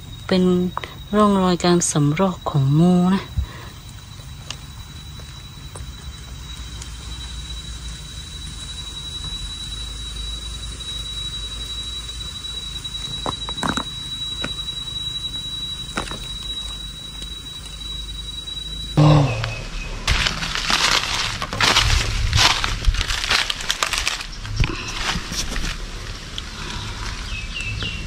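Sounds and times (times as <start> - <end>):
high-pitched insect tone: 0.0 - 28.0
crackles in dry leaves: 0.1 - 14.7, 19.8 - 28.0
rustle: 20.1 - 28.0.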